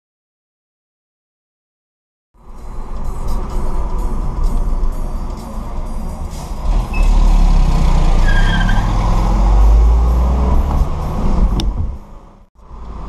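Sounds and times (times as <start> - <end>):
car engine and road rumble: 2.4 - 13.0.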